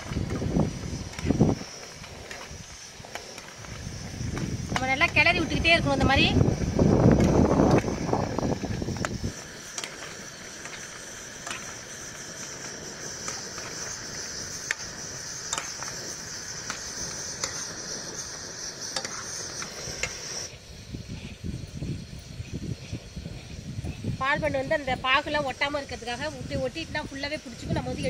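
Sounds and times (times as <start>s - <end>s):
sharp popping: 0.0s - 20.6s
sugar syrup bubbling and hissing: 0.0s - 28.0s.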